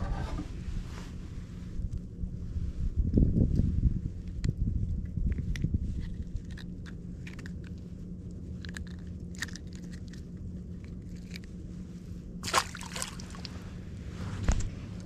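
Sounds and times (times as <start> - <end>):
faint low hum: 0.0 - 15.0
low rumble: 0.0 - 15.0
clicks and crackles of handling fish: 4.3 - 11.6.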